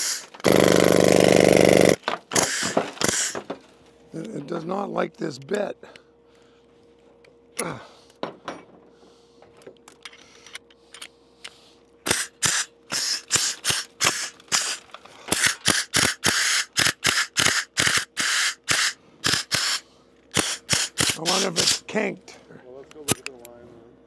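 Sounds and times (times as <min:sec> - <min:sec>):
pneumatic air hammer bursts: 0:00.0 - 0:03.5, 0:12.0 - 0:21.9.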